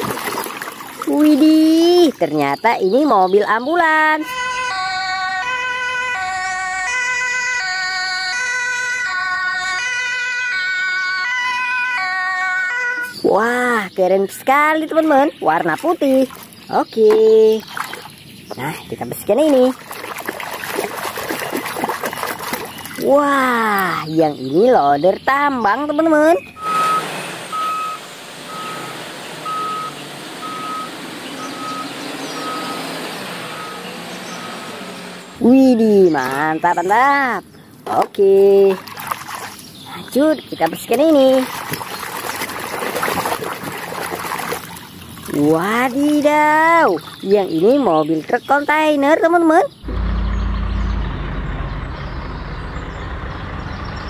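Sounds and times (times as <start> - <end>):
ambulance two-tone siren: 4.0 - 13.3, 26.6 - 35.4
diesel engine running: 25.2 - 37.2, 49.7 - 54.0
reversing alarm beeping: 26.4 - 35.0.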